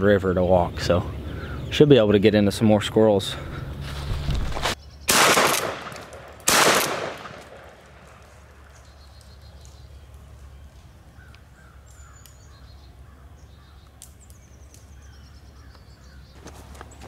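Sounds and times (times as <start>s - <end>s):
birds calling: 0.0s - 17.0s
crackling footsteps: 3.4s - 4.8s, 5.6s - 17.0s.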